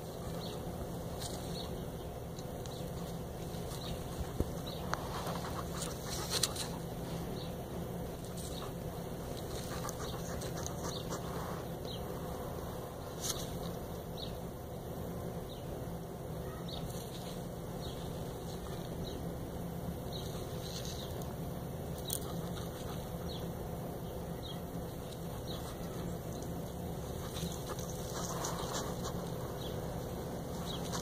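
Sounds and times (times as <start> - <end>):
clicks and rustles on gravel: 0.0 - 1.8, 2.4 - 7.2, 27.1 - 29.8
steady low hum: 0.0 - 31.0.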